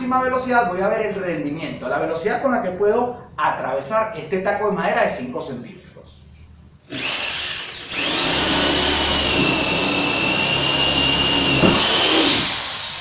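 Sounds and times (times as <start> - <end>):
electric drill motor whine: 6.9 - 13.0.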